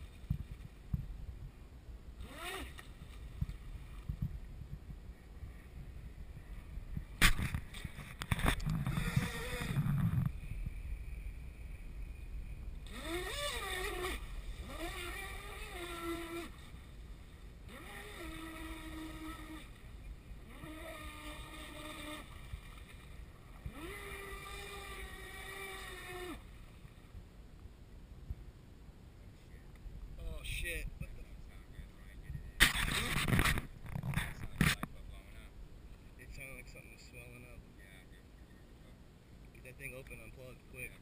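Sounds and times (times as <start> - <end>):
electric motor whining: 2.2 - 2.8, 8.5 - 10.3, 12.8 - 16.6, 17.7 - 19.7, 20.4 - 22.3, 23.6 - 26.4.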